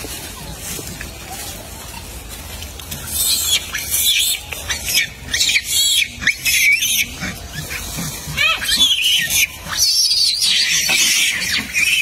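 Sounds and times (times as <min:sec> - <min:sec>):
monkeys squealing: 0:03.1 - 0:12.0.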